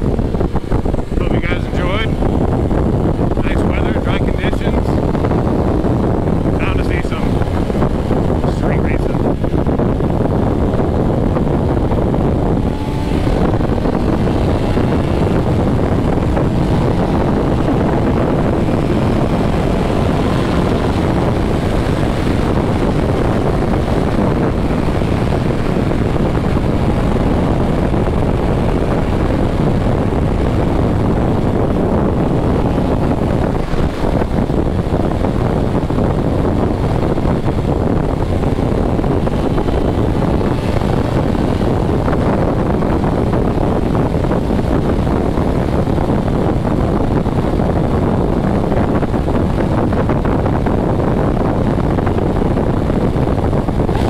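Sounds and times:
motorcycle engine drone: 0.0s - 54.0s
rushing wind: 0.0s - 54.0s.

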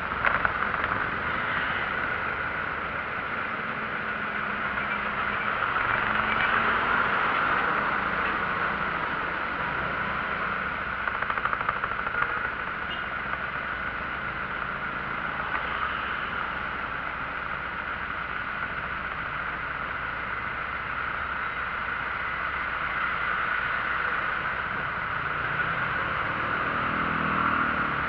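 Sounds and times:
vehicle engines idling: 0.0s - 28.0s
engine revving: 24.8s - 28.0s.

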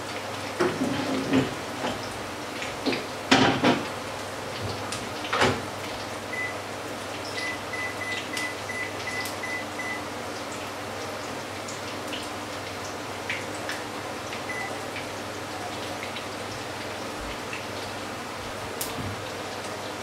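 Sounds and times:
fritters sizzling in a frying pan: 0.0s - 20.0s
short high beeps: 7.4s - 10.0s, 14.5s - 14.8s.

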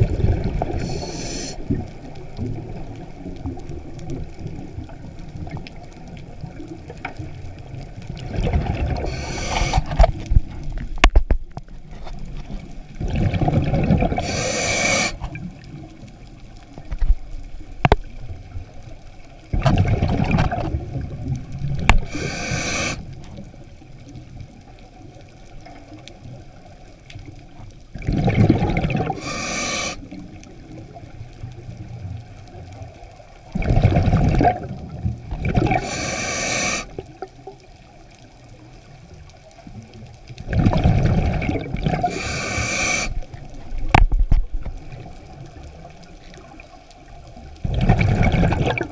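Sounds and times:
diver breathing through regulator: 0.7s - 1.7s, 8.9s - 10.0s, 14.1s - 15.3s, 22.0s - 23.2s, 29.0s - 30.2s, 35.6s - 37.0s, 42.0s - 43.2s.

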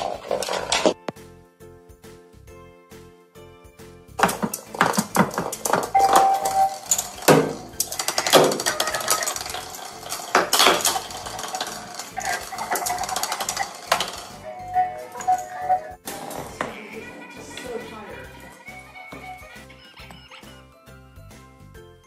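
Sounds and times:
plastic ball clattering on tiles: 0.0s - 1.0s, 4.2s - 19.3s
dog claws scrabbling on tiles: 7.8s - 14.4s.

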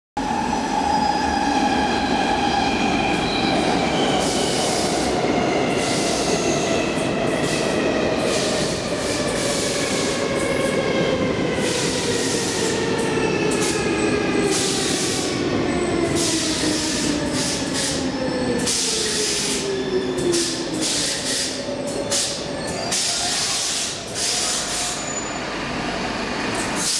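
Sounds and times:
metro train braking: 0.2s - 26.9s
hiss from wheels and brakes: 14.5s - 15.3s, 16.2s - 18.0s, 20.4s - 25.1s, 26.6s - 26.9s.

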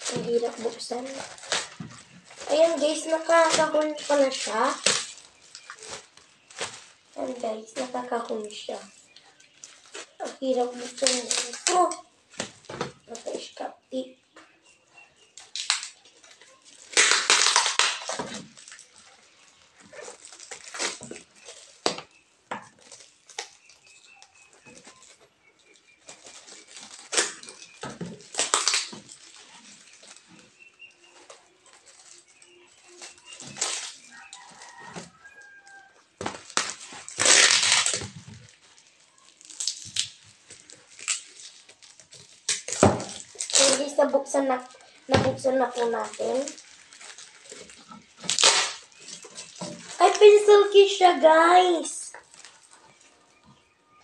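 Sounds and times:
cardboard being ripped: 0.0s - 8.0s, 16.9s - 18.8s, 26.1s - 30.2s, 36.2s - 38.4s, 45.1s - 50.5s
parcel wrapping tearing and crinkling: 0.0s - 13.6s, 14.4s - 53.8s.

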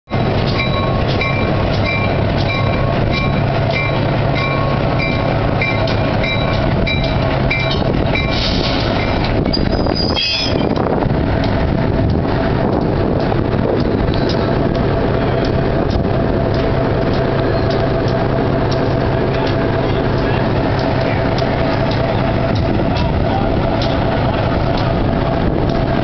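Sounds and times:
diesel locomotive engine drone: 0.0s - 26.0s
locomotive bell ringing: 0.1s - 10.8s, 16.6s - 25.1s
high wavering squeal: 0.6s - 10.8s.

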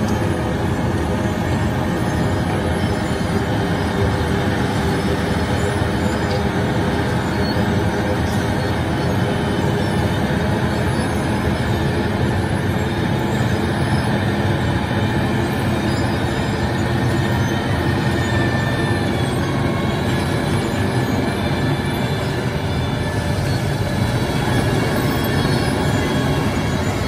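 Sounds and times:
milling machine grinding asphalt: 0.0s - 27.0s.

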